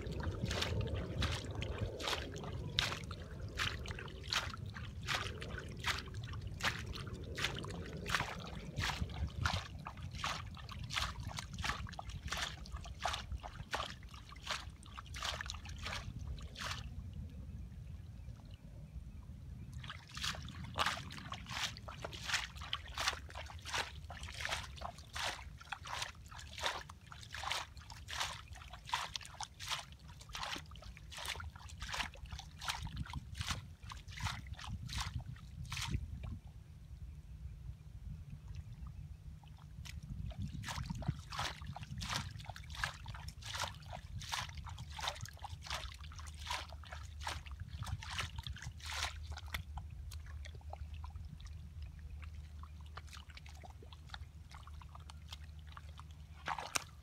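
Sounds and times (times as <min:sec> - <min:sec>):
low rumble: 0:00.0 - 0:11.4
hands sloshing through muddy water: 0:00.0 - 0:17.6, 0:19.7 - 0:36.5, 0:38.3 - 0:57.0.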